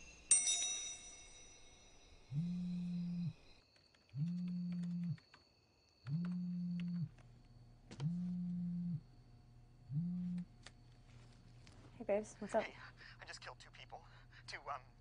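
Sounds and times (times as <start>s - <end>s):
phone vibrating: 2.3s - 3.5s, 4.2s - 5.2s, 6.1s - 7.1s, 7.9s - 9.1s, 9.9s - 10.5s
computer keyboard typing: 3.7s - 5.4s, 6.0s - 7.0s.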